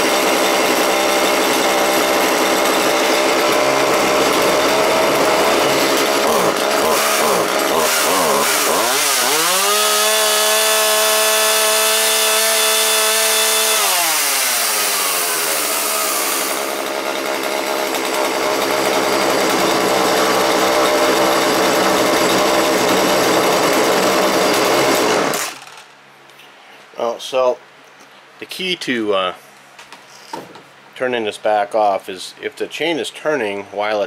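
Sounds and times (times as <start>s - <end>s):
chainsaw revving and idling: 0.0s - 25.9s.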